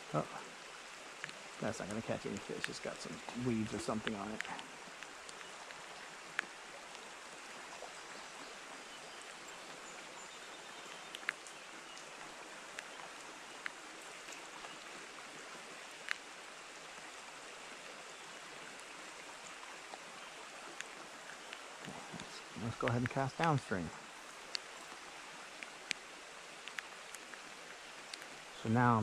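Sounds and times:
creek water rushing: 0.0 - 29.0
falling rain: 0.0 - 29.0
sharp ticks: 1.2 - 7.1, 21.5 - 23.7.

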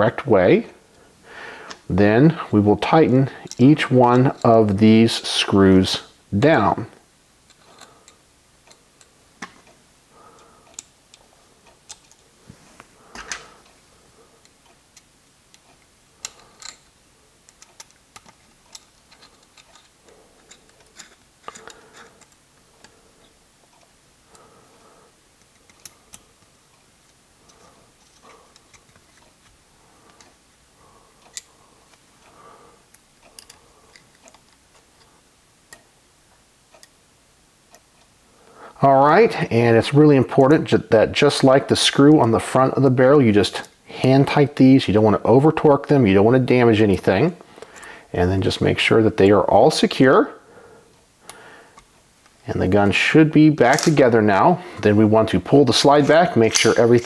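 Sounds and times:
soft handling scrapes: 12.4 - 13.8
small metallic screw clicks: 14.4 - 22.4, 32.9 - 34.9.

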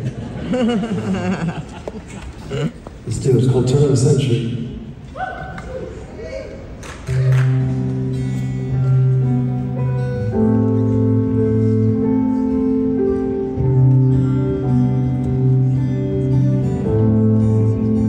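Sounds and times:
acoustic guitar strumming waltz: 7.4 - 18.0.

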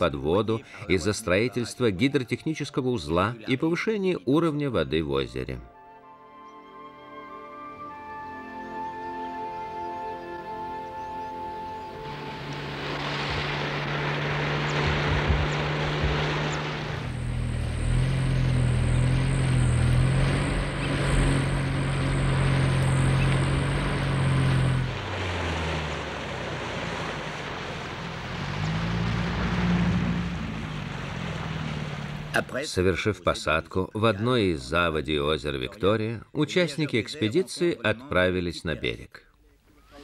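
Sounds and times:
engines running: 11.2 - 32.7.

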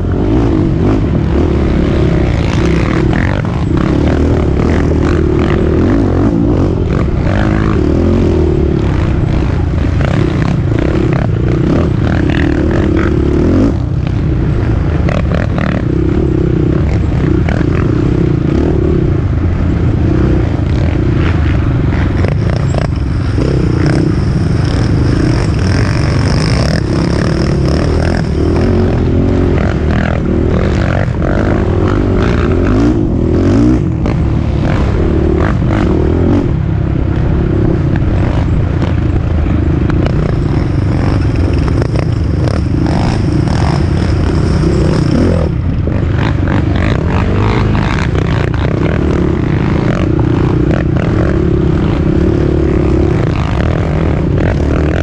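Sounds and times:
quad engine revving: 0.0 - 55.0.

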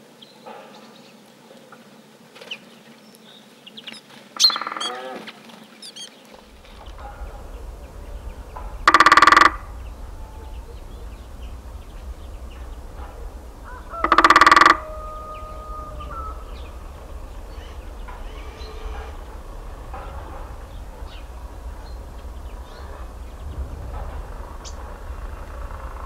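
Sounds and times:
low steady rumble: 6.3 - 26.0
large bird honking: 6.6 - 23.4.

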